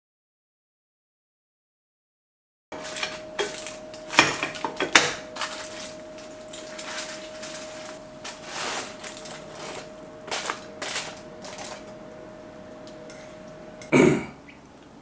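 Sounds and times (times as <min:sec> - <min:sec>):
chopsticks scraping a pan: 0:02.8 - 0:12.1, 0:12.9 - 0:13.6
foil crinkling: 0:02.8 - 0:13.6
faint steady hum: 0:02.8 - 0:15.0.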